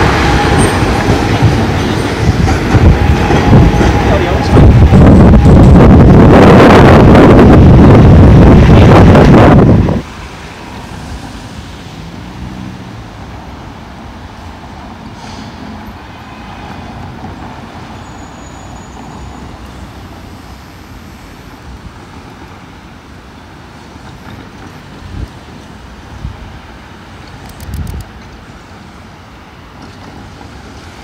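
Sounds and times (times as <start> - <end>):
cars driving past: 10.8 - 14.2.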